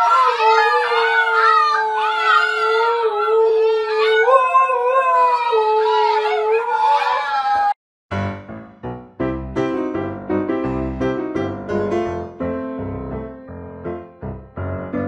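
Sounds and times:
dogs howling: 0:00.0 - 0:07.8.

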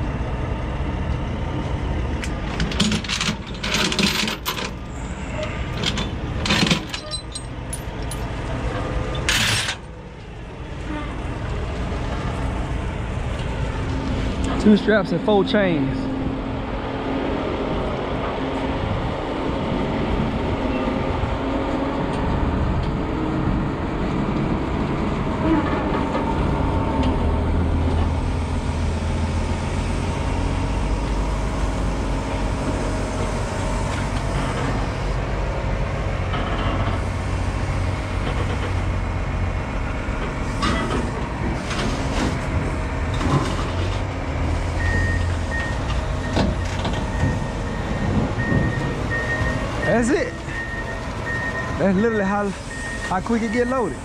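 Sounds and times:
diesel loader engine under load: 0:00.0 - 0:54.0
metal clanks: 0:05.7 - 0:08.3
reverse alarm beeping: 0:44.8 - 0:54.0.

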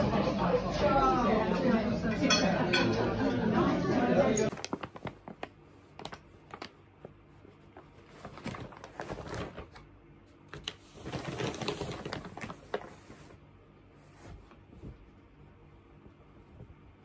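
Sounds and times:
paper bag crinkling: 0:04.5 - 0:13.4.

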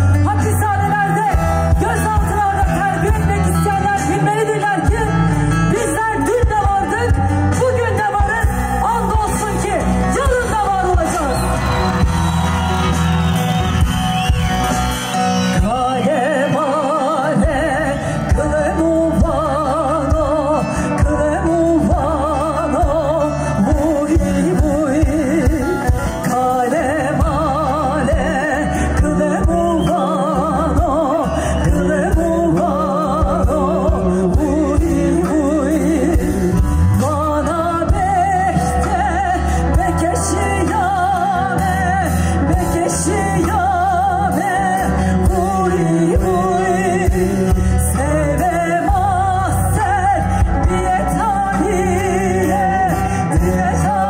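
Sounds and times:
live band music: 0:00.0 - 0:54.0
person singing: 0:15.4 - 0:54.0.

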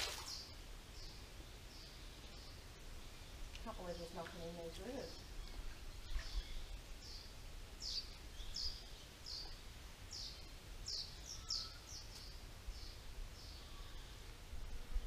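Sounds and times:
small bird chirping: 0:03.6 - 0:14.2.

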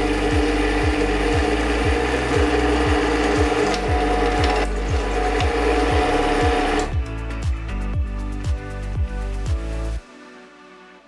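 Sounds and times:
drill press cutting metal pipe: 0:00.0 - 0:06.9
music with kick-drum beat: 0:00.0 - 0:10.1.

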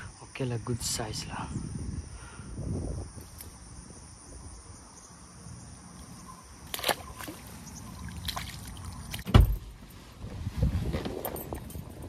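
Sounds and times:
water trickling and sloshing: 0:05.9 - 0:09.8
fish splashing in water: 0:06.6 - 0:09.3.

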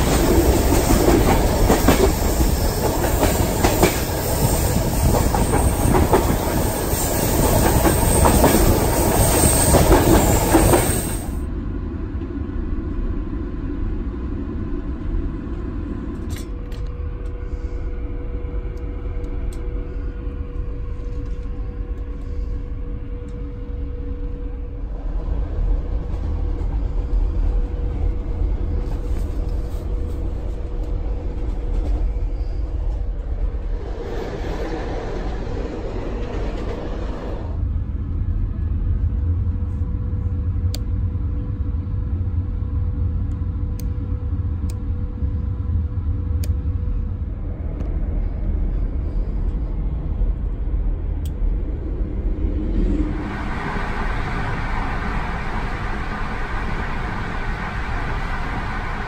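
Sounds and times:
train carriage rumbling on rails: 0:00.0 - 0:59.0
rushing noise: 0:45.2 - 0:59.0.

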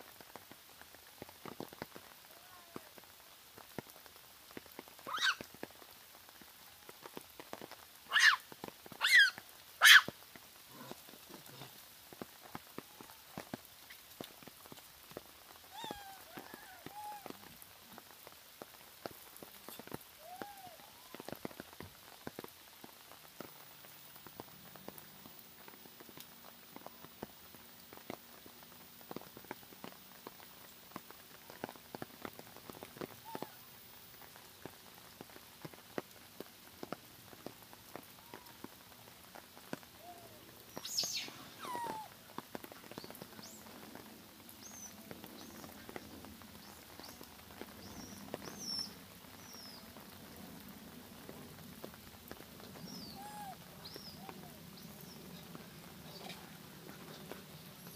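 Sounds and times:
rain dripping and pattering: 0:00.0 - 0:57.9
macaque calls: 0:05.1 - 0:05.4, 0:08.1 - 0:08.4, 0:09.0 - 0:10.1, 0:40.8 - 0:42.1, 0:53.0 - 0:54.5.

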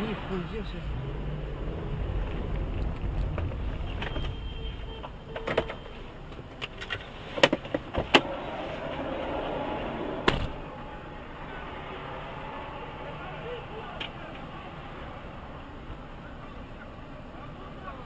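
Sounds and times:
car engine rumble: 0:00.0 - 0:18.0
road noise: 0:00.0 - 0:18.0.

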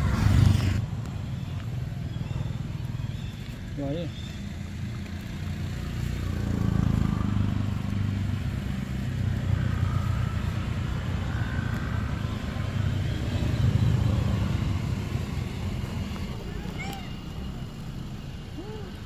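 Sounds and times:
motor running with low rumble: 0:00.0 - 0:19.0.

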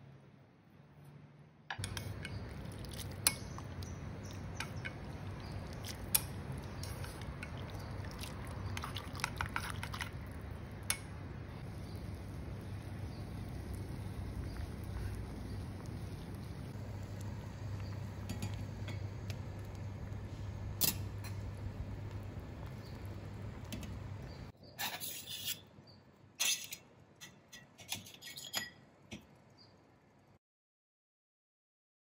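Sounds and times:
water boiling in a pot: 0:01.8 - 0:25.5
chopsticks clicking against pot: 0:05.8 - 0:07.6.

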